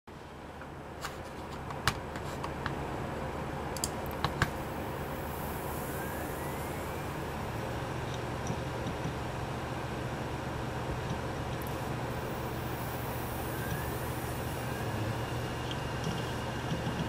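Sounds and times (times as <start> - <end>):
hard drives humming: 0.1 - 17.0
faint rising whine: 2.8 - 17.0
hard drive clicks: 8.0 - 9.3, 13.0 - 17.0.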